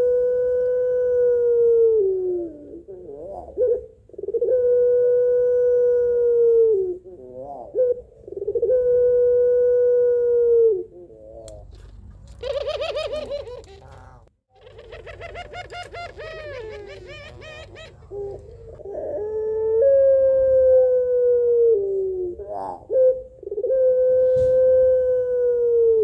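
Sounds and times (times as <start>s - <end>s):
dove cooing: 0.0s - 26.0s
dove quavering call: 12.4s - 20.0s.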